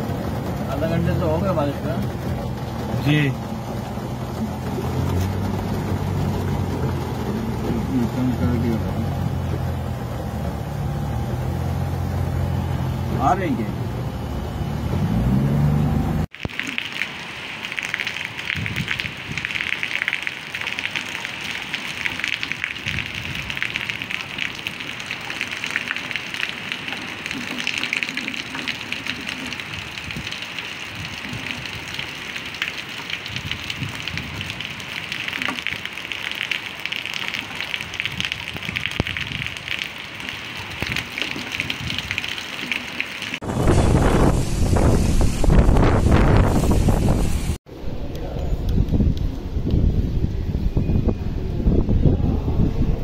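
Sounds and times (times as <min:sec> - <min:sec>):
vehicle engine revving: 0:00.0 - 0:16.3
heavy rain pouring: 0:00.0 - 0:53.0.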